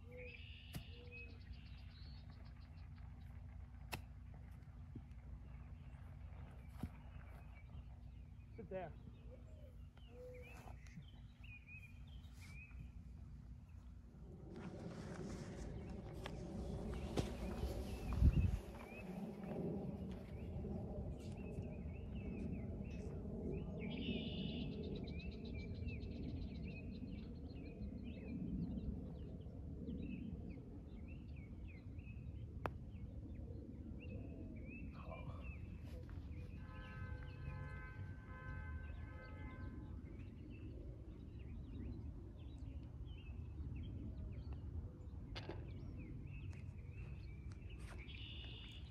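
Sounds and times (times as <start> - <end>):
steady low rumble: 0.0 - 39.1.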